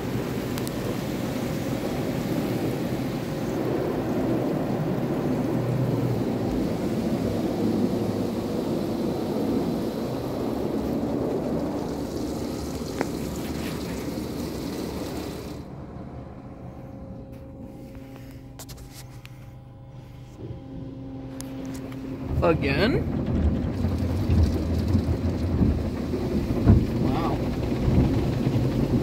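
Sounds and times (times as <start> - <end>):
car wash blowers rushing air: 0.0 - 29.0
machine hum: 0.0 - 29.0.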